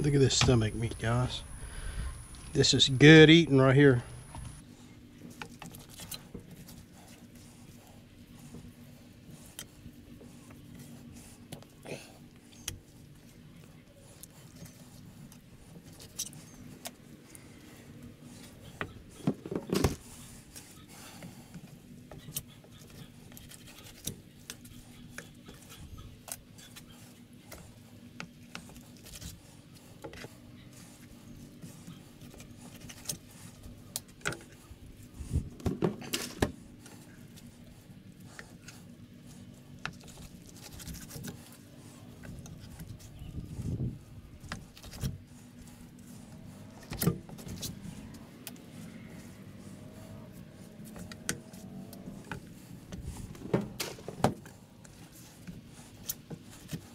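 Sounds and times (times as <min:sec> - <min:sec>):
faint steady hum: 0:00.0 - 0:56.9
knocks and handling sounds: 0:14.2 - 0:56.9.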